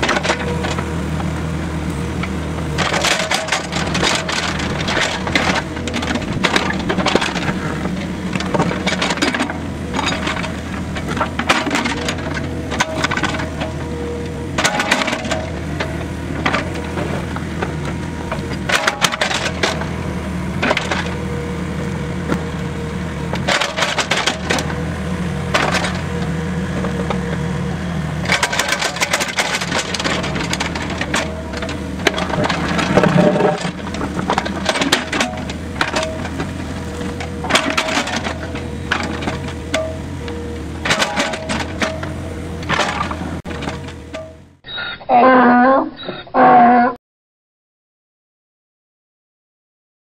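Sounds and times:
excavator bucket clanking: 0:00.0 - 0:01.4, 0:02.2 - 0:27.6, 0:28.2 - 0:44.5
diesel engine running: 0:00.0 - 0:44.6.

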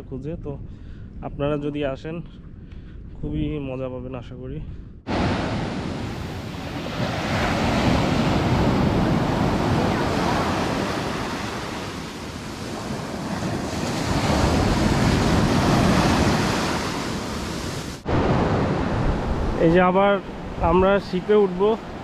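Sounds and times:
wind on microphone: 0:00.0 - 0:22.0
surf breaking on shore: 0:05.1 - 0:22.0.

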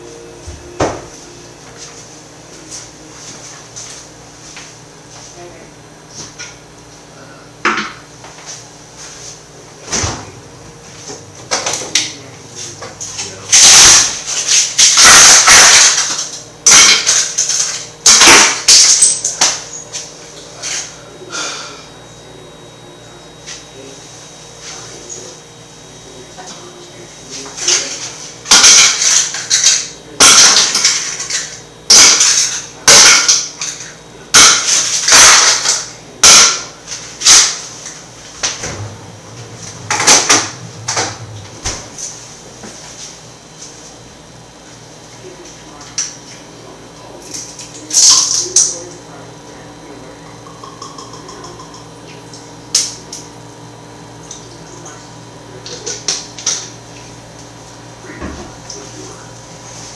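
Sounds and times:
steady low hum: 0:00.0 - 0:59.9
kitchen items knocking together: 0:13.2 - 0:19.8, 0:27.7 - 0:37.6, 0:38.4 - 0:42.0.

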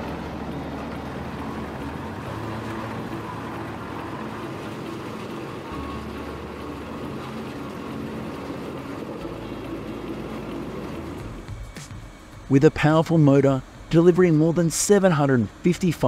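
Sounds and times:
wood shredder engine drone: 0:00.0 - 0:15.5.

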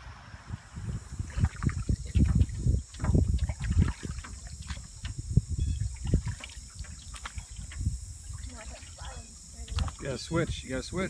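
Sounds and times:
paddle splashing in water: 0:00.0 - 0:10.1
low thumps: 0:00.8 - 0:09.0.

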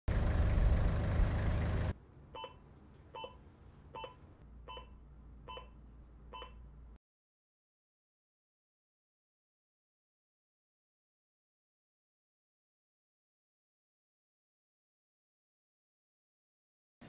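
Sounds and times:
vehicle engine running: 0:00.1 - 0:02.0
patient monitor beeping: 0:02.2 - 0:06.7.

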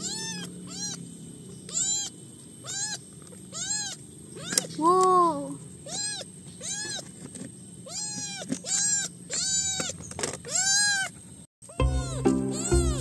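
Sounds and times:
kitten meowing: 0:00.0 - 0:01.0, 0:01.7 - 0:05.1, 0:05.8 - 0:07.1, 0:07.8 - 0:11.1, 0:11.7 - 0:13.0
background music: 0:11.8 - 0:13.0.

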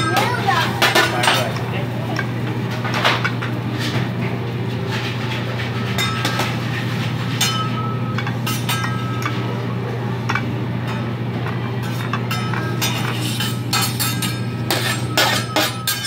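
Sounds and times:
steady low hum: 0:00.0 - 0:16.0
metal spatula scraping on griddle: 0:11.8 - 0:16.0.

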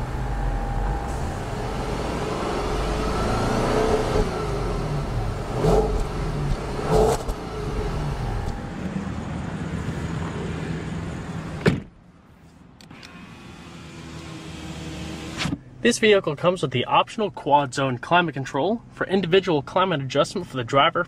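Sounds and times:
car engine revving: 0:00.0 - 0:11.6.

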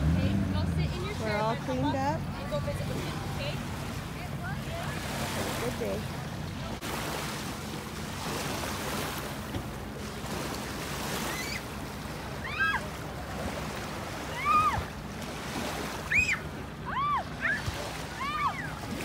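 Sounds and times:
lake water lapping: 0:00.0 - 0:19.0
wind: 0:00.0 - 0:19.0
small child squealing: 0:11.3 - 0:11.7, 0:12.4 - 0:12.8, 0:14.3 - 0:14.8, 0:16.1 - 0:17.6, 0:18.2 - 0:18.7.

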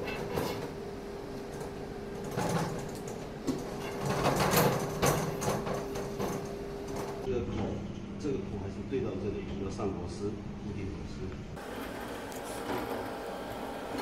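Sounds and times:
metal tubes scraping and rattling: 0:01.6 - 0:07.3.

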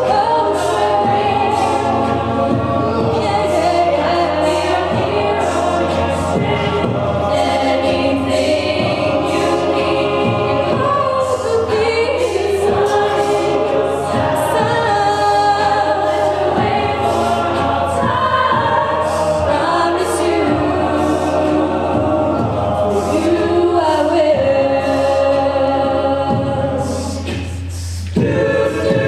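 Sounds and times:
a cappella group singing: 0:00.0 - 0:29.0.

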